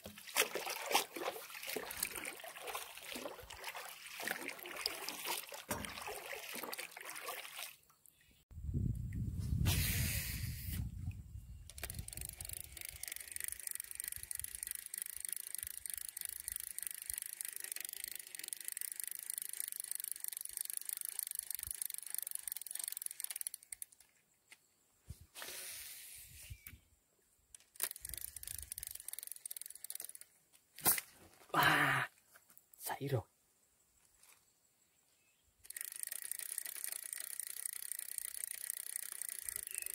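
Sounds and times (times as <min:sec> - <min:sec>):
fishing reel ticking: 0:11.6 - 0:24.1, 0:27.6 - 0:30.4, 0:35.6 - 0:39.9.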